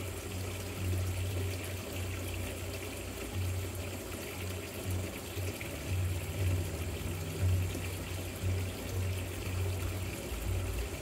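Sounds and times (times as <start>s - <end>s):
fountain water trickling: 0.0s - 11.0s.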